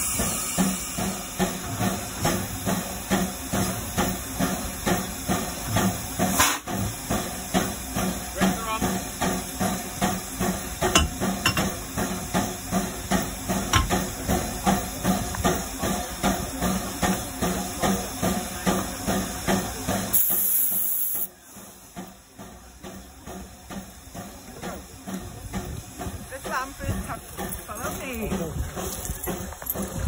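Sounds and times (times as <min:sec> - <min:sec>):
locomotive machinery pulsing: 0:00.0 - 0:30.0
brake hose air hiss: 0:20.1 - 0:21.3.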